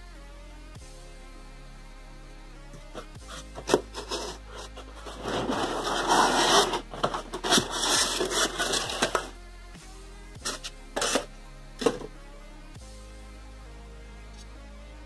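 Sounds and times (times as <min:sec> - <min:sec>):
faint background music: 0:00.0 - 0:15.0
styrofoam scraping in cardboard box: 0:02.9 - 0:09.3, 0:10.4 - 0:12.1.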